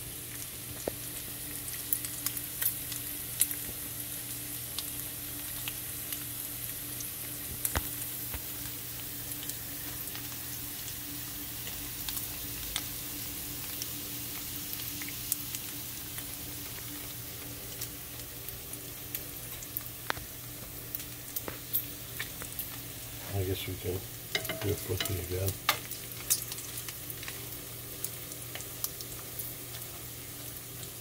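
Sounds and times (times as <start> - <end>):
bacon sizzling in a pan: 0.0 - 31.0.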